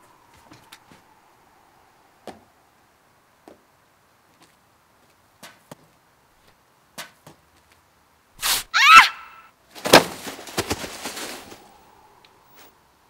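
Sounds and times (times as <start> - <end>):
faint footsteps tapping: 4.3 - 7.8.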